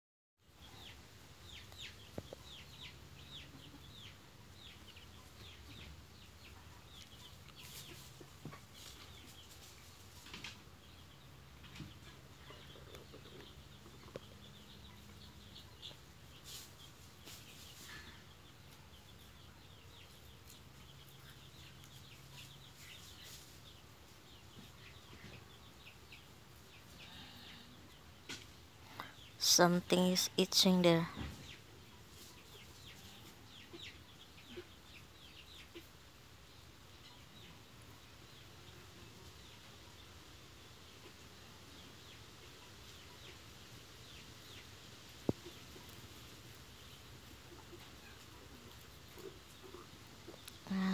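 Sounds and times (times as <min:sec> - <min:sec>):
chicks peeping: 0:00.6 - 0:50.9
hen clucking softly: 0:35.5 - 0:36.0.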